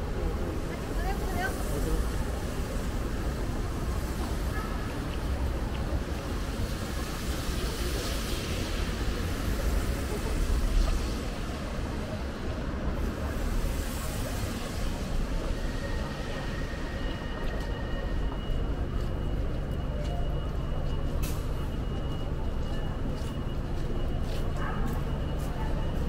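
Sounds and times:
vehicles hissing on wet road: 0:00.1 - 0:16.7.

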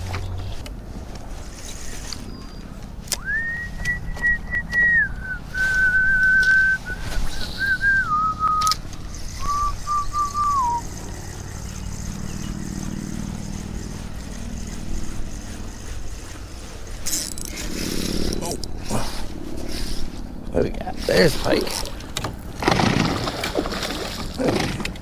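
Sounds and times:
person whistling: 0:03.2 - 0:08.8, 0:09.4 - 0:10.9.

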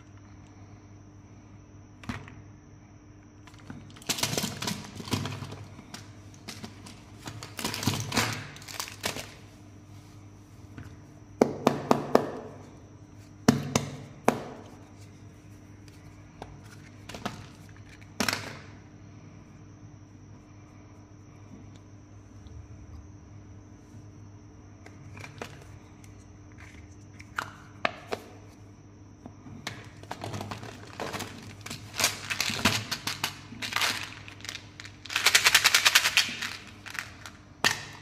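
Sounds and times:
faint steady hum: 0:00.0 - 0:38.0
packaging rustling and crinkling: 0:06.5 - 0:09.4, 0:30.0 - 0:37.4.

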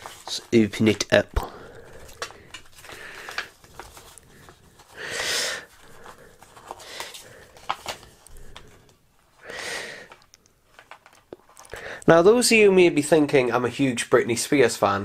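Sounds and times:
light paper clicks: 0:02.0 - 0:05.0, 0:05.8 - 0:09.0, 0:10.1 - 0:11.8.

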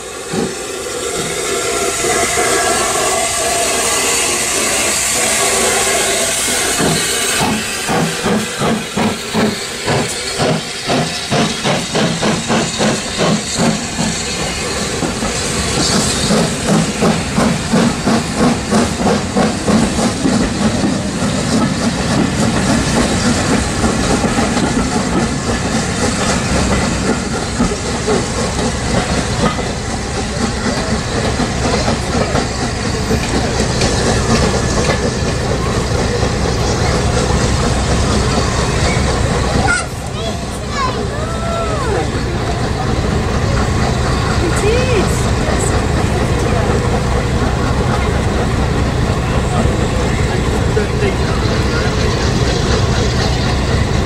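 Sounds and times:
steam hissing: 0:00.0 - 0:54.0
steam locomotive chuffing: 0:00.0 - 0:54.0
train coaches rumbling by: 0:00.0 - 0:54.0.

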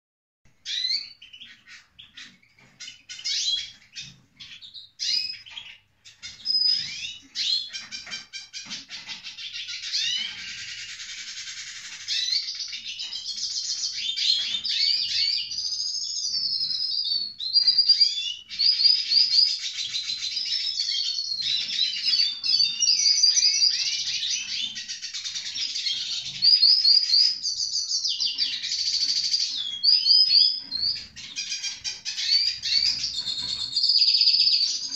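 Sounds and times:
bird chirps and twittering warble: 0:00.6 - 0:34.9.

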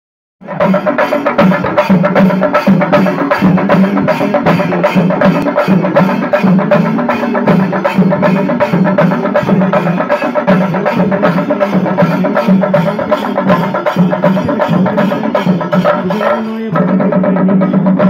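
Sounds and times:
drum ensemble playing fast beat: 0:00.4 - 0:18.0.

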